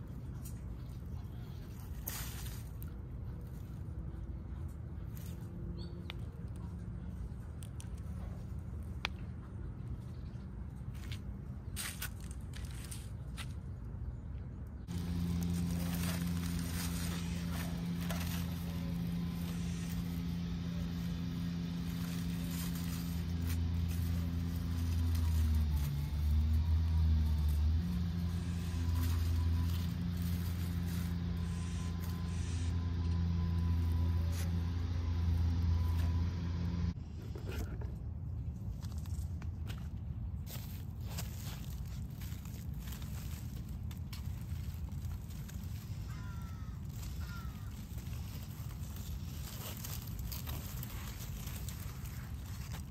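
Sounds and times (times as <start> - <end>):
engine humming: 0.0 - 52.9
plant stems scraping and clicking: 10.8 - 13.6, 14.8 - 52.9.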